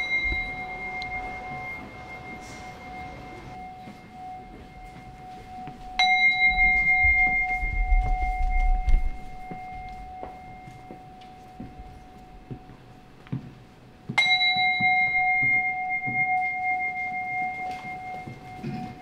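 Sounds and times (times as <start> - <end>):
bowl bell ringing: 0.0 - 19.0.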